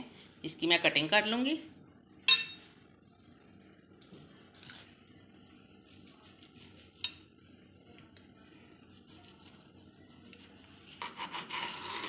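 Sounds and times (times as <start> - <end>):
knife cutting bread: 10.4 - 12.0.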